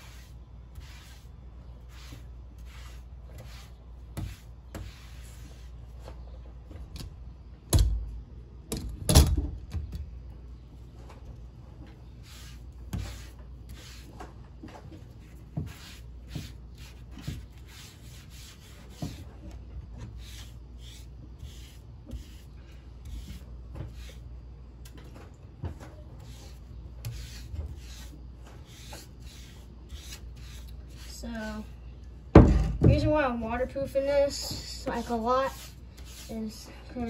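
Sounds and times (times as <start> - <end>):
foam brush rubbing on wood: 0.0 - 6.1, 12.0 - 14.2, 15.0 - 24.3, 26.0 - 31.7, 34.0 - 36.7.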